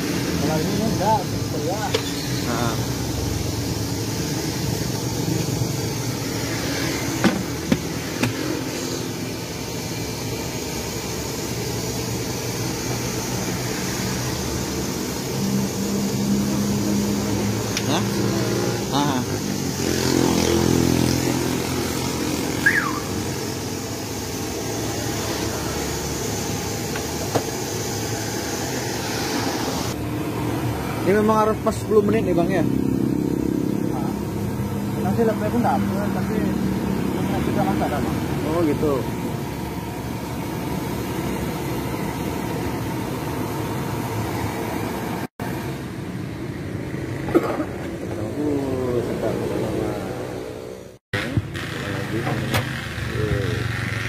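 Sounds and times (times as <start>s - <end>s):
gas burner rushing: 0.0s - 32.6s
steady traffic noise: 0.0s - 54.0s.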